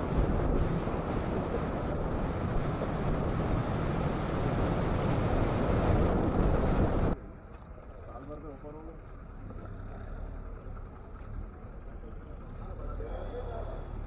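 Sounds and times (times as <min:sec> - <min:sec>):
wind roaring over microphone: 0:00.0 - 0:07.2
roadside sound: 0:00.0 - 0:14.0.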